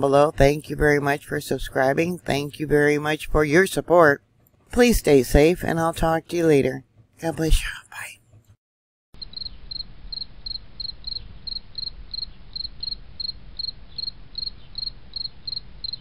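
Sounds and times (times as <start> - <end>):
cricket chirping: 9.2 - 16.0.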